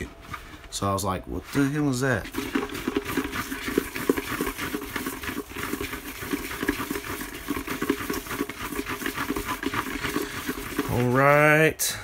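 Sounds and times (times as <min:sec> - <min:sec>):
paper slips rustling in bucket: 0:01.4 - 0:11.3.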